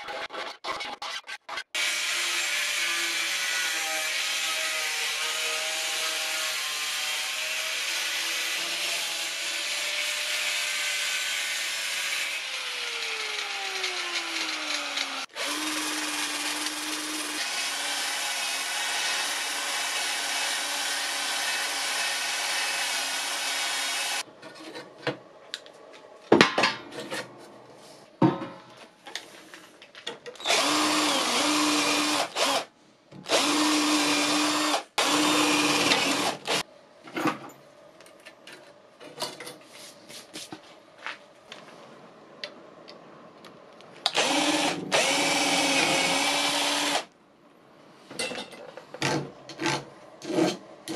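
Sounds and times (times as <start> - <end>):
angle grinder on steel: 1.8 - 24.2.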